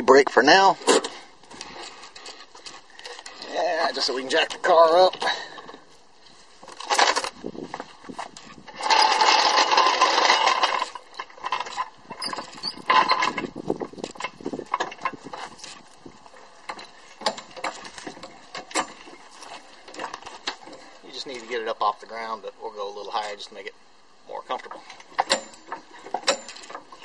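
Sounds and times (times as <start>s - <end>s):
floor jack scraping and rattling: 6.7s - 15.9s
floor jack clicking and clunking: 6.8s - 15.8s, 16.7s - 20.9s, 25.0s - 27.0s.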